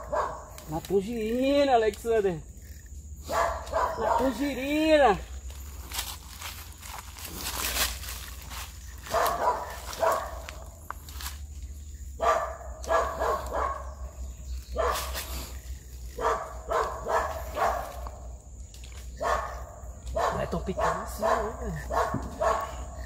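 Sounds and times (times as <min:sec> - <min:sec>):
dog barking: 0:00.0 - 0:00.5, 0:03.2 - 0:04.5, 0:09.1 - 0:10.5, 0:12.2 - 0:14.0, 0:14.7 - 0:15.2, 0:16.1 - 0:18.2, 0:19.2 - 0:23.0.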